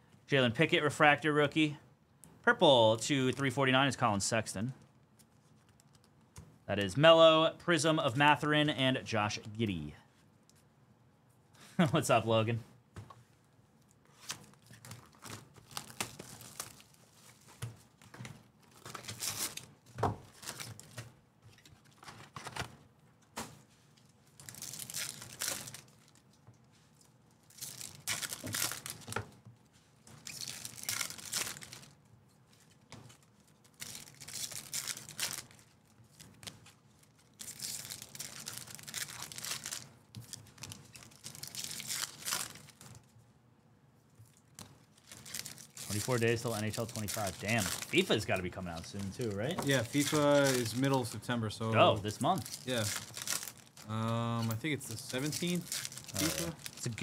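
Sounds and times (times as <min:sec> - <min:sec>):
foil wrappers tearing and crinkling: 0:14.2 - 0:17.4, 0:18.6 - 0:19.7, 0:20.3 - 0:21.0, 0:24.2 - 0:26.2, 0:27.4 - 0:29.2, 0:30.2 - 0:32.0, 0:32.6 - 0:43.0, 0:44.5 - 0:51.2, 0:51.8 - 0:57.0.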